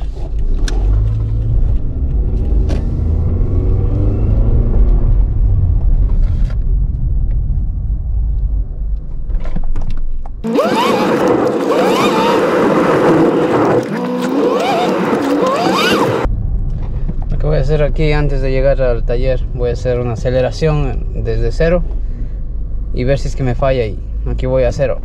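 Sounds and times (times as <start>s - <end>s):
car engine rumble from inside cabin: 0.0s - 9.3s.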